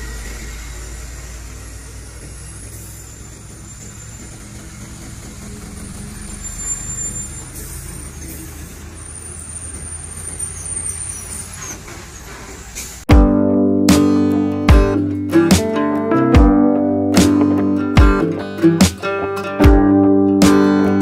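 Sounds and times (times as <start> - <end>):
heavy diesel vehicles passing: 0.0 - 13.1.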